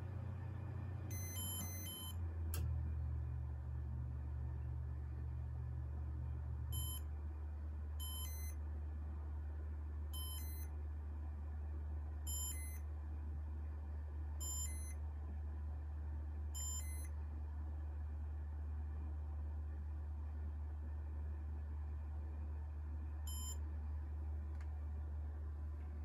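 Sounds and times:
ceiling fan humming: 0:00.0 - 0:19.4.

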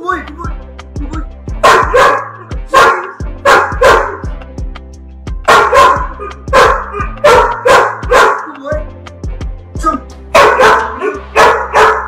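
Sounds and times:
background music: 0:00.0 - 0:12.0
dog barking: 0:01.6 - 0:04.2, 0:05.5 - 0:08.6, 0:10.3 - 0:12.0.

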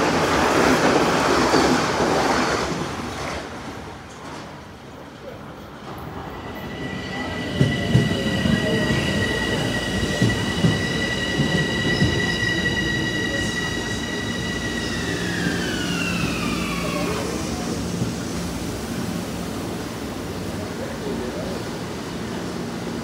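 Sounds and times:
train high whine: 0:05.9 - 0:21.5.

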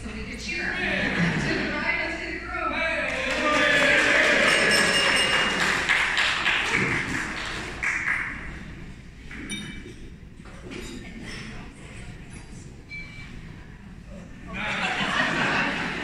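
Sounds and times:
crowd noise: 0:00.0 - 0:09.4, 0:11.0 - 0:16.0
wine glasses clinking: 0:04.2 - 0:05.8, 0:09.3 - 0:11.5.

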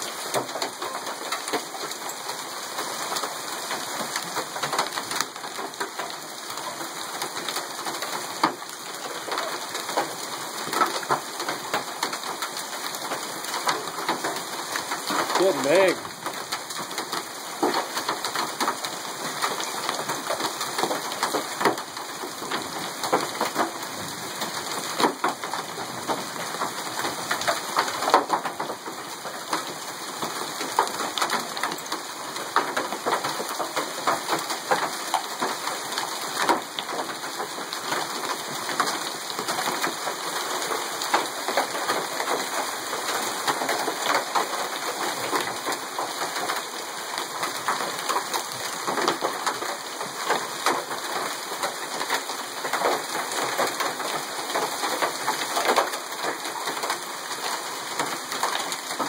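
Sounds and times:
heavy rain hissing: 0:00.0 - 0:28.5
hailstones striking a car: 0:00.2 - 0:02.1, 0:07.2 - 0:23.7, 0:24.8 - 0:40.2.

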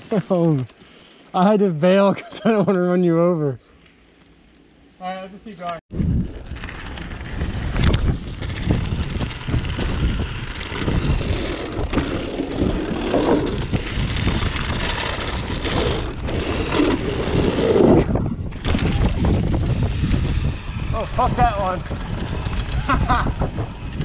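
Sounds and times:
wind buffeting microphone: 0:05.9 - 0:24.0
bike rattling and knocking: 0:06.4 - 0:17.0, 0:18.5 - 0:24.0.

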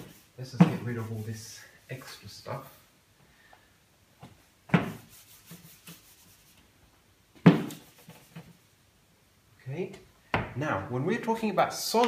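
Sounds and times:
eraser rubbing on whiteboard: 0:00.0 - 0:01.6, 0:05.0 - 0:06.6, 0:07.7 - 0:08.6.

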